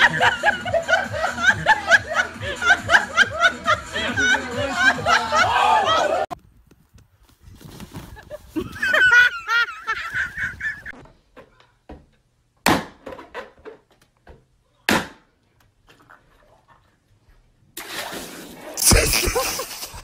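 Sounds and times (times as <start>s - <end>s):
balloons bursting: 18.8s - 20.0s.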